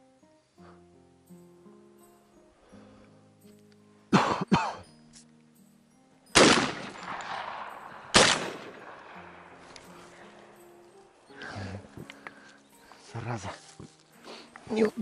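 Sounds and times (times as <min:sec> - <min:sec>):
shotgun bangs with echo: 0:06.3 - 0:09.4.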